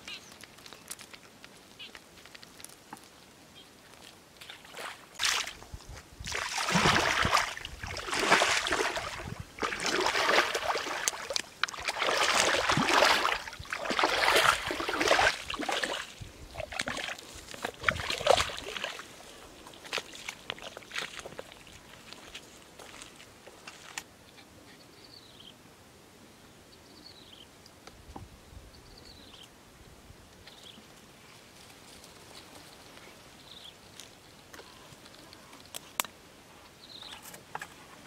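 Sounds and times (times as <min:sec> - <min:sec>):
water splashing and sloshing: 0:03.9 - 0:24.0.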